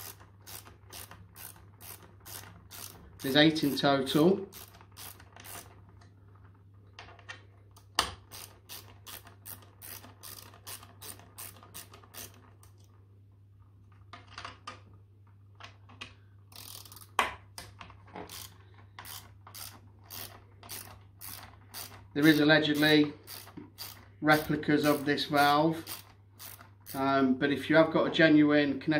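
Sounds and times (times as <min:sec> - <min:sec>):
hand ratchet clicking: 0:00.0 - 0:05.8, 0:07.8 - 0:12.8, 0:16.5 - 0:17.2, 0:18.2 - 0:27.0.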